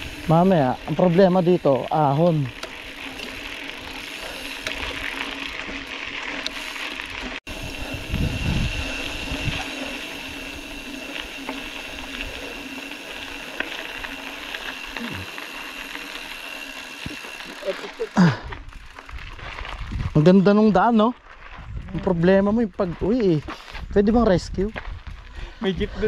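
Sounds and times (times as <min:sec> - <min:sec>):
wind noise: 0:00.0 - 0:12.7, 0:18.4 - 0:26.0
bicycle freehub ratcheting: 0:00.0 - 0:23.1.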